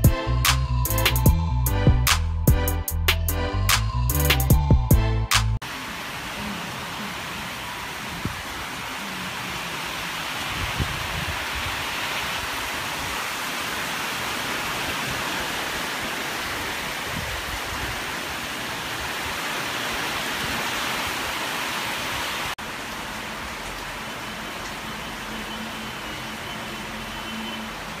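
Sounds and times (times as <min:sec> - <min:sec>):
heavy rain pouring: 0:05.6 - 0:28.0.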